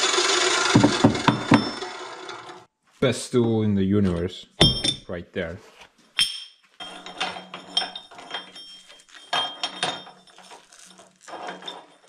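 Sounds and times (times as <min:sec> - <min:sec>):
light metallic clinks: 0:06.2 - 0:12.0.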